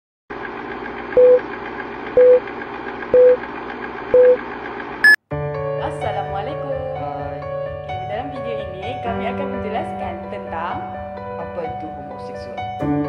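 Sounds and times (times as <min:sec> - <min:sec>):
music: 0:05.3 - 0:13.0.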